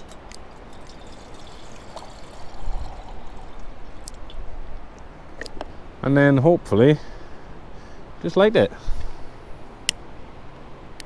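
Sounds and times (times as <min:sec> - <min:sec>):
water pouring from a bottle: 0:00.0 - 0:04.5
wind buffeting microphone: 0:00.0 - 0:05.6.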